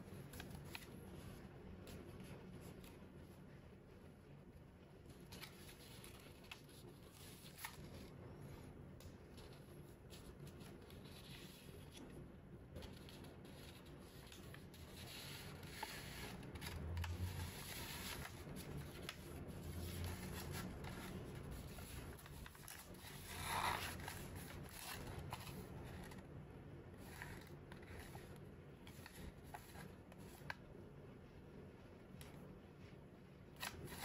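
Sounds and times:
paper rustling and scraping: 0:00.1 - 0:03.0, 0:05.1 - 0:26.2, 0:27.0 - 0:30.6, 0:33.5 - 0:34.0
paper crinkle: 0:05.1 - 0:26.2.

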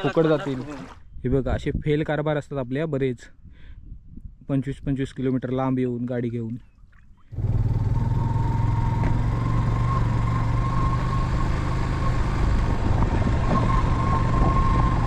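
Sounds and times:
vehicle engine running: 0:07.4 - 0:15.0.

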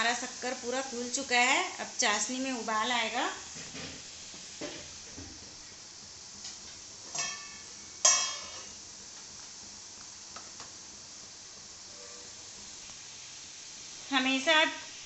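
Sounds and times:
faint steady hiss: 0:00.0 - 0:15.0
metal kitchenware clinking: 0:07.1 - 0:08.7.

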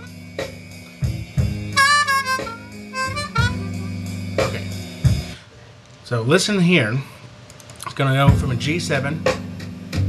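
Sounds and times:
blues harmonica playing: 0:00.0 - 0:05.0
slow blues backing track: 0:00.0 - 0:05.4, 0:08.3 - 0:10.0.

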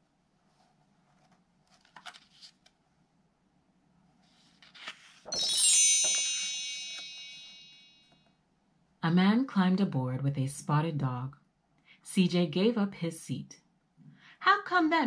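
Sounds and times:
paper page rustling: 0:00.5 - 0:02.8, 0:04.2 - 0:05.6
bright high chime: 0:05.3 - 0:08.2.

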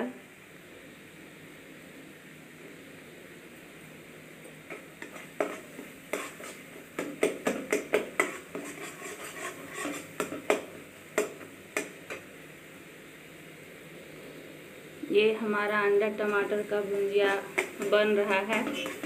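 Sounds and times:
spatula scraping a pan: 0:05.0 - 0:11.3, 0:16.9 - 0:19.0.

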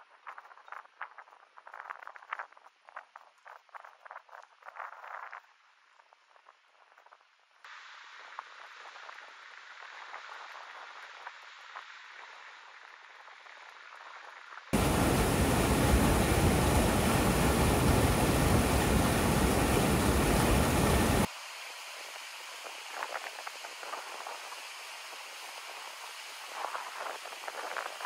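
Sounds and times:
faint crackles: 0:00.0 - 0:21.3
stream rushing over rocks: 0:14.8 - 0:21.3.

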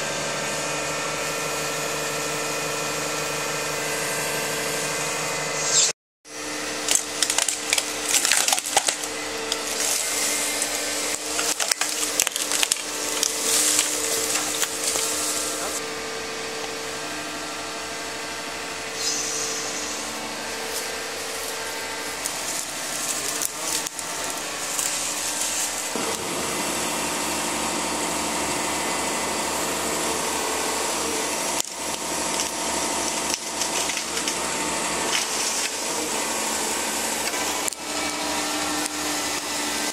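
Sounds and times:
diesel engine and hydraulics: 0:00.0 - 0:39.9
wood cracking and snapping: 0:06.8 - 0:15.7, 0:22.2 - 0:26.0, 0:31.6 - 0:34.4.

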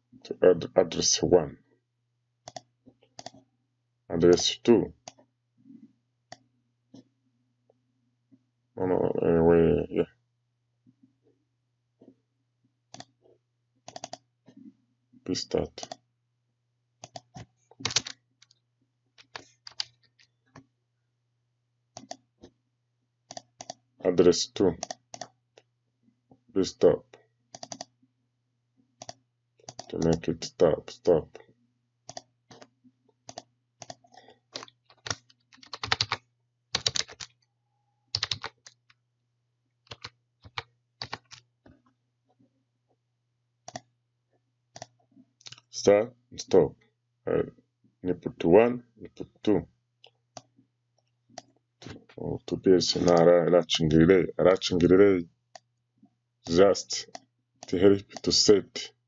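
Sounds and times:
mouse clicks: 0:02.5 - 0:03.4, 0:32.1 - 0:32.7, 0:43.7 - 0:43.9, 0:44.8 - 0:45.6
keyboard keys clicking: 0:13.9 - 0:14.2, 0:17.0 - 0:18.2, 0:19.2 - 0:19.9, 0:27.6 - 0:27.9, 0:29.0 - 0:30.2, 0:33.3 - 0:37.4, 0:38.1 - 0:38.9, 0:39.9 - 0:41.5.

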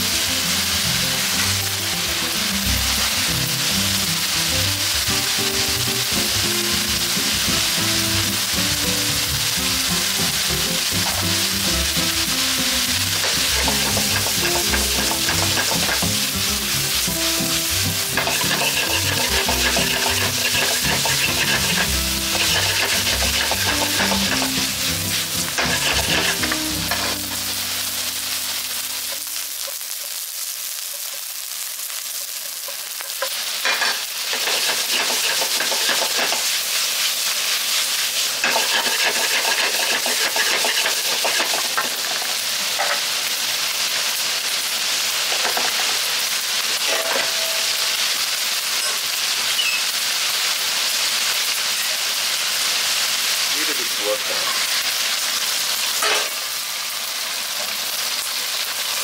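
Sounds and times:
background music: 0:00.0 - 0:29.4
food sizzling in a wok: 0:00.0 - 0:59.0
spatula clacking against wok: 0:13.2 - 0:17.1, 0:18.0 - 0:24.8, 0:25.4 - 0:27.1, 0:32.2 - 0:36.6, 0:38.4 - 0:43.1.

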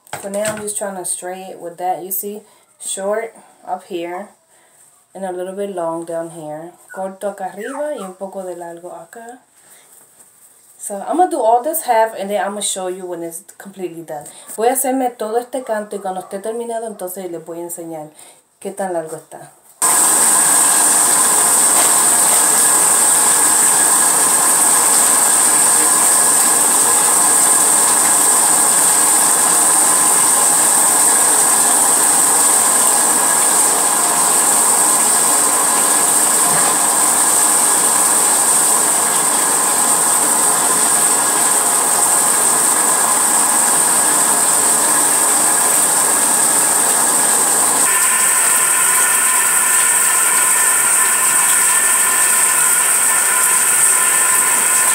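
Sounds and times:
hair dryer running: 0:19.8 - 0:54.9.

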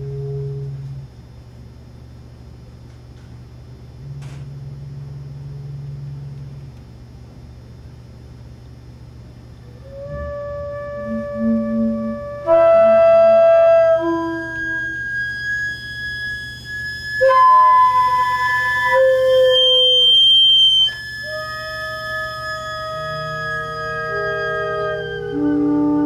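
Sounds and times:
wooden organ pipes holding notes: 0:09.7 - 0:26.0.

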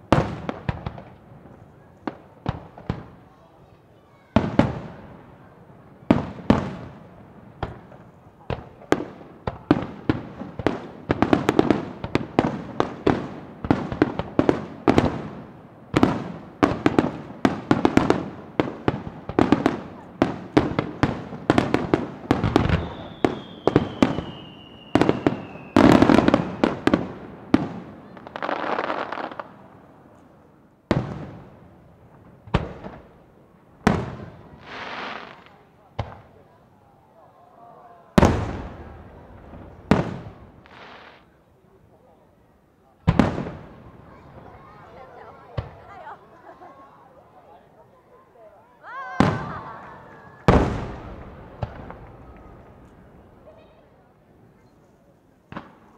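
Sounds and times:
falling firework whistle: 0:22.4 - 0:26.6.

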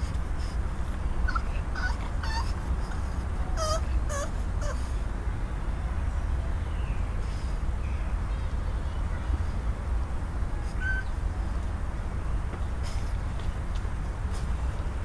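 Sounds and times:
dog whimpering: 0:01.2 - 0:04.8, 0:10.6 - 0:11.1.

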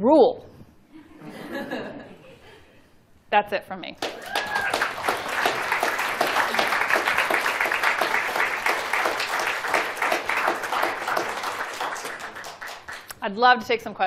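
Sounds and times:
audience clapping: 0:04.0 - 0:13.2.

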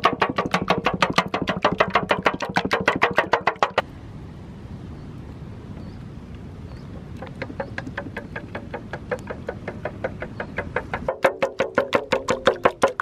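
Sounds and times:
low background hiss and rumble: 0:03.4 - 0:11.2
spoon beating eggs in metal bowl: 0:11.2 - 0:13.0.

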